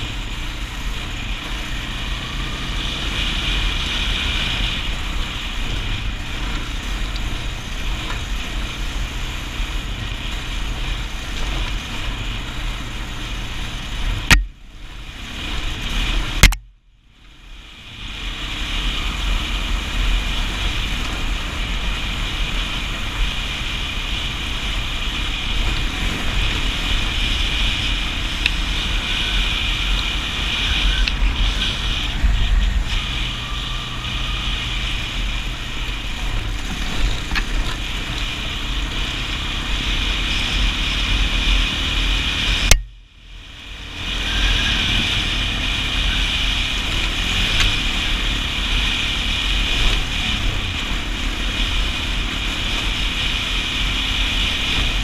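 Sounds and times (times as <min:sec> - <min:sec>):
atv engine running: 0:00.0 - 0:55.0
rumble on microphone: 0:03.9 - 0:55.0
sharp click: 0:16.4 - 0:16.7.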